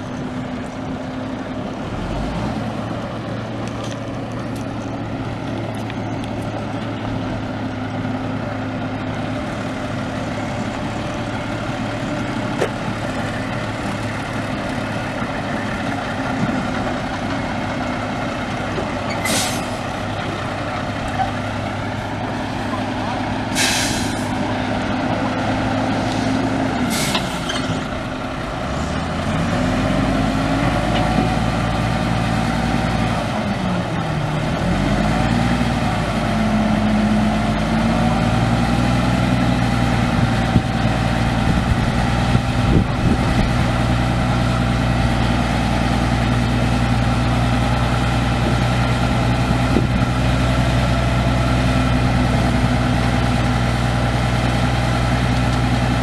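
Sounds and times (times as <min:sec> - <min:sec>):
diesel truck engine running: 0:00.0 - 0:56.0
short air hiss: 0:19.2 - 0:19.8, 0:23.5 - 0:24.3, 0:26.0 - 0:27.4.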